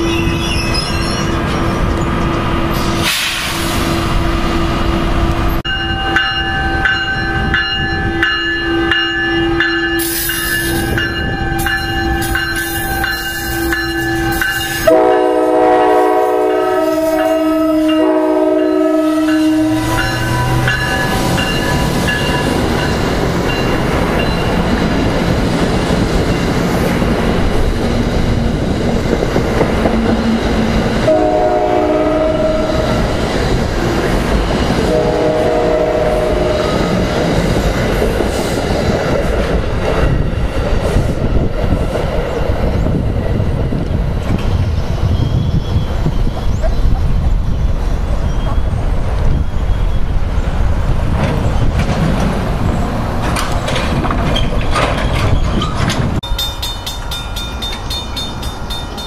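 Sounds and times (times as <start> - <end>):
train rumble and clatter: 0.0 - 59.0
train horn: 12.6 - 21.8, 30.0 - 33.0, 34.9 - 37.0.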